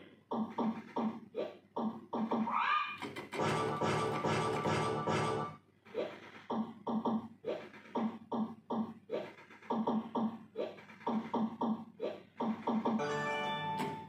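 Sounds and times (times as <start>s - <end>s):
slot machine pitched blips: 13.0s - 14.0s.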